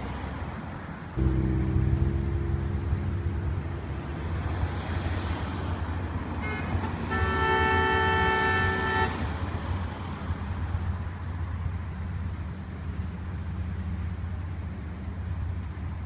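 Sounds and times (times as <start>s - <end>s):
traffic rumble: 0.0s - 16.0s
car horn held: 1.2s - 4.5s.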